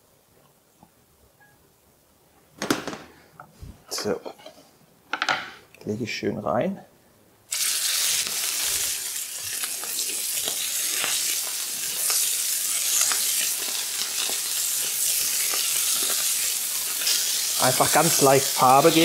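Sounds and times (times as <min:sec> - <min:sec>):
fat crackling and spitting: 0:07.5 - 0:19.0
meat sizzling in a frying pan: 0:07.5 - 0:19.0.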